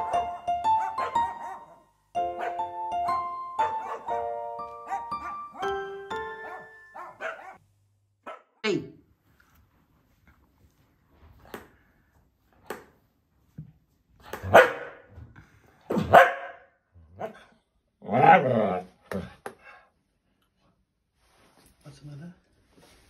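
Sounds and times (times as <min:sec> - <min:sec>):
dog barking: 0:00.0 - 0:01.8, 0:02.4 - 0:02.7, 0:03.7 - 0:05.7, 0:06.4 - 0:07.6, 0:08.2 - 0:08.5, 0:14.4 - 0:15.1, 0:15.9 - 0:17.5.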